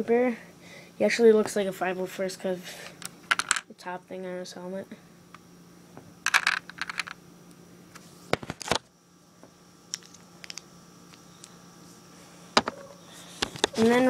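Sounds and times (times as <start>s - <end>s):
faint steady hum: 0.0s - 14.0s
small handling clicks: 9.9s - 11.6s.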